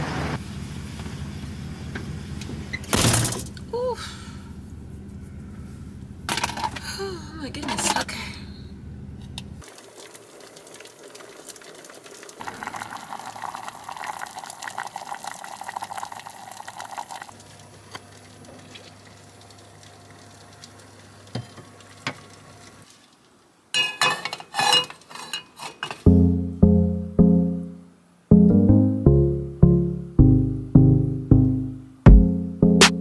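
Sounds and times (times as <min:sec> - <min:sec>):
soup bubbling in a pot: 0:09.6 - 0:23.2
metal cookware clinking: 0:23.7 - 0:26.1.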